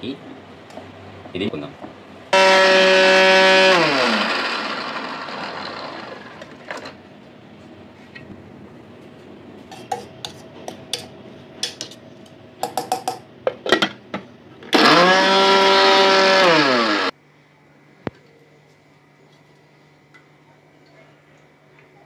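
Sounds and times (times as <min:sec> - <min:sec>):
mixer grinder motor running: 0:02.4 - 0:07.0, 0:14.7 - 0:17.1.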